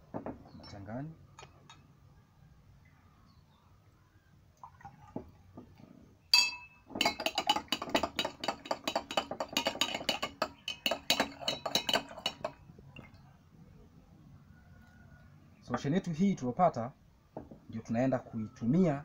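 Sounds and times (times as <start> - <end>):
glass rod clinking in glass beaker: 6.3 - 12.6.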